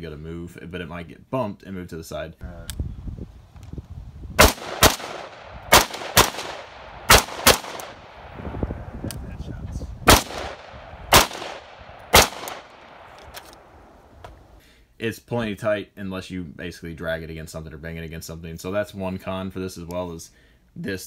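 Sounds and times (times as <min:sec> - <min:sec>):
rifle shots: 0:04.4 - 0:08.4, 0:10.0 - 0:13.9.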